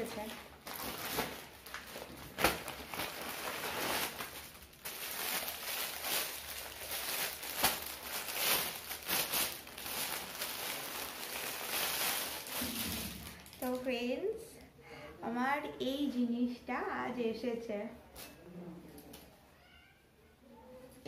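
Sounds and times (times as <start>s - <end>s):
plastic packaging crinkling: 0.0s - 13.9s.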